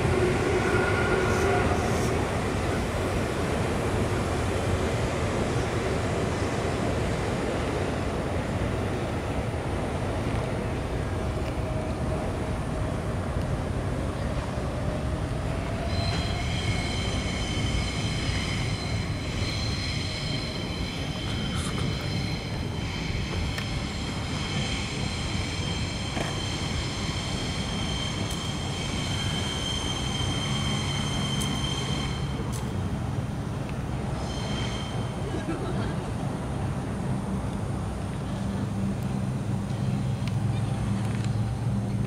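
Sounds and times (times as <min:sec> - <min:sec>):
train wheel squeal: 0:00.0 - 0:03.0, 0:14.2 - 0:32.8, 0:33.9 - 0:35.4
train rumbling: 0:00.0 - 0:42.0.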